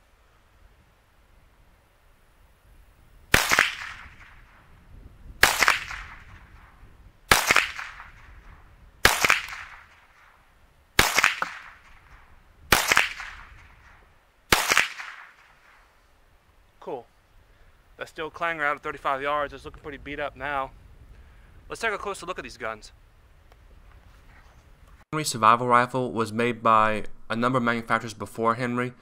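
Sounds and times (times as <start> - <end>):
rifle shots: 3.3 - 4.7, 5.4 - 10.4, 11.0 - 15.8.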